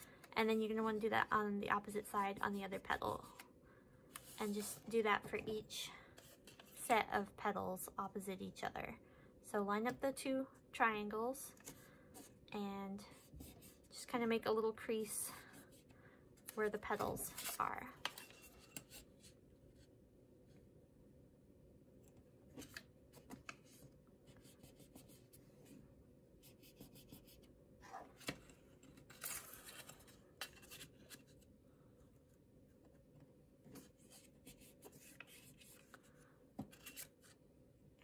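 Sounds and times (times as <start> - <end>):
low room hum: 0.0 - 38.0
paper rustling and crinkling: 28.1 - 31.4.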